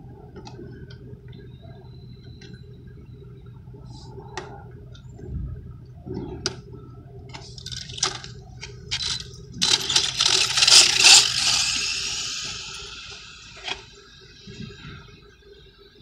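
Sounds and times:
high-pitched motor whine: 0:07.4 - 0:16.0
rc car throttle blips: 0:09.0 - 0:13.9.

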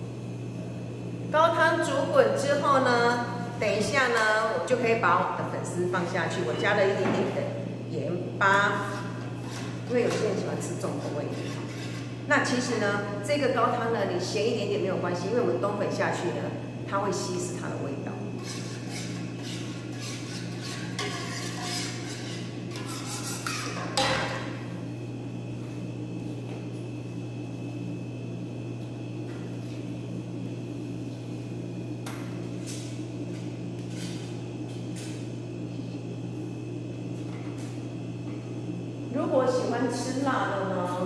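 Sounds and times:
steady low hum: 0:00.0 - 0:41.0
metal ladle scraping a wok: 0:11.3 - 0:12.1, 0:18.4 - 0:23.9.

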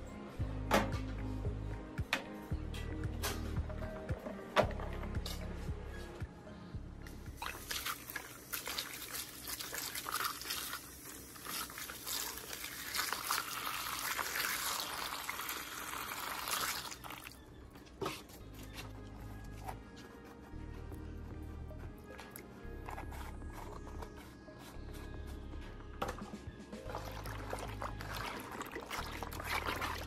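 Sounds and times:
water pouring into plastic tub: 0:07.4 - 0:17.4, 0:26.9 - 0:30.0.

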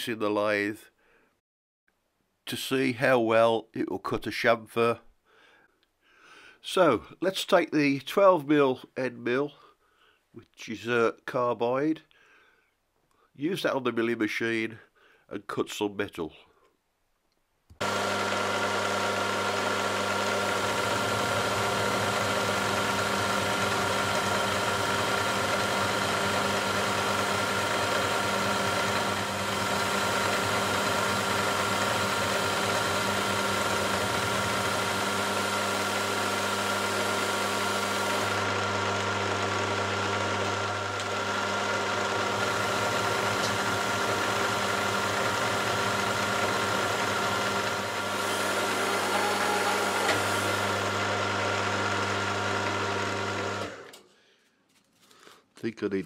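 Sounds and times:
milling machine cutting metal: 0:17.8 - 0:53.8.

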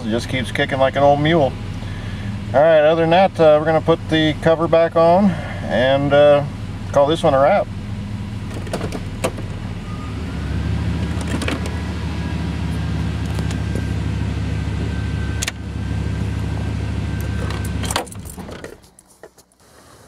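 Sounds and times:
pickup engine idling: 0:00.0 - 0:20.0
thin steady whine: 0:11.7 - 0:18.7.

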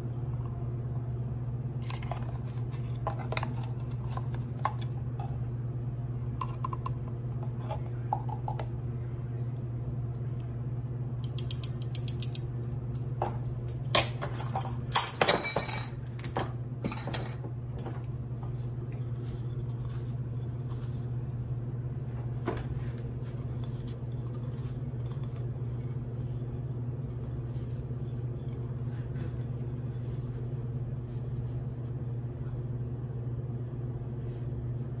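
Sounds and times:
steady low hum: 0:00.0 - 0:35.0
metal spoons clinking on ceramic: 0:13.9 - 0:16.0.

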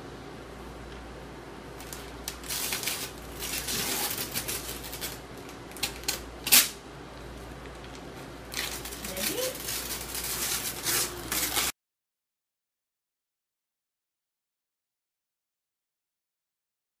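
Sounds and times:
wrapping paper rustling and tearing: 0:01.8 - 0:06.8, 0:08.5 - 0:11.8.

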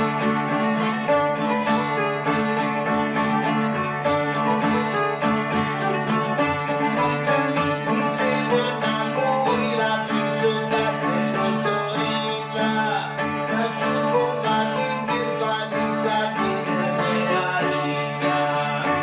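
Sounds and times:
bouzouki melody: 0:00.0 - 0:19.0.

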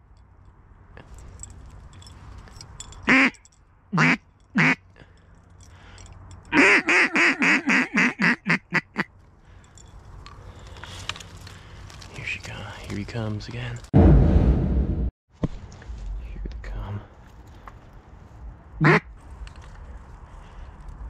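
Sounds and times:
duck call quacking: 0:03.1 - 0:03.4, 0:04.0 - 0:04.8, 0:06.5 - 0:09.1, 0:18.8 - 0:19.1.

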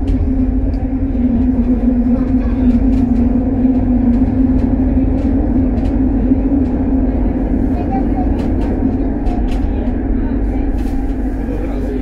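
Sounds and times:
train rumbling through tunnel: 0:00.0 - 0:12.0.

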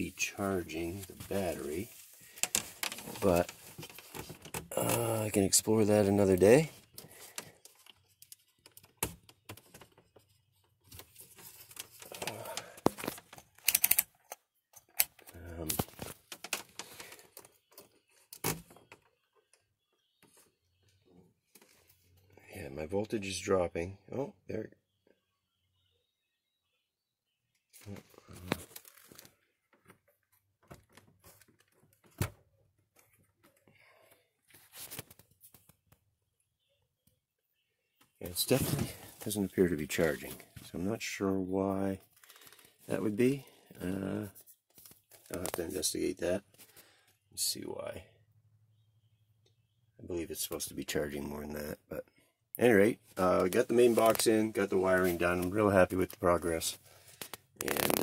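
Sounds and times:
light handling clicks and rustles: 0:00.5 - 0:22.4, 0:27.6 - 0:36.1.

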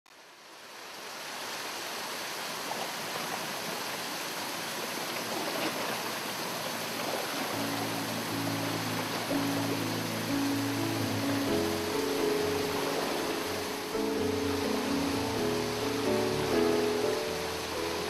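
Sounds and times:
waterfall splashing into pool: 0:00.1 - 0:18.0
low sustained music notes: 0:06.6 - 0:18.0.

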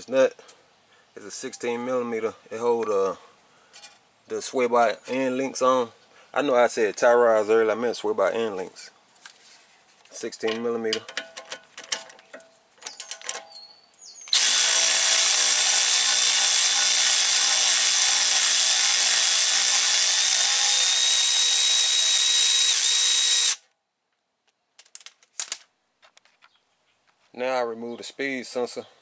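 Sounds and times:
socket clicking and rattling: 0:11.0 - 0:13.6
power wrench running with whine: 0:14.3 - 0:23.6.

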